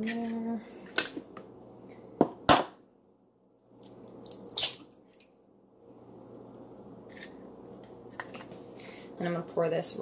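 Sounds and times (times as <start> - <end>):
eggshell crackling: 3.6 - 5.4.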